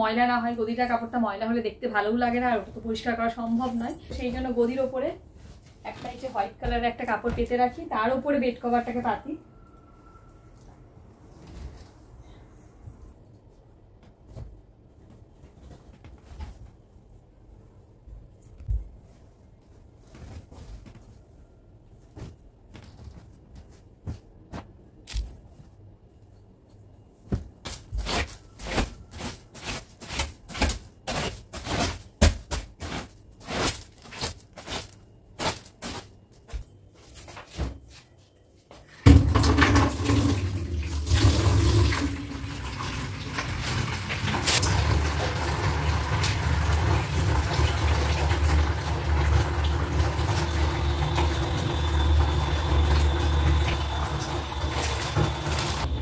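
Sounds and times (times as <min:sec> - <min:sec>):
water gushing: 0:39.1 - 0:56.0.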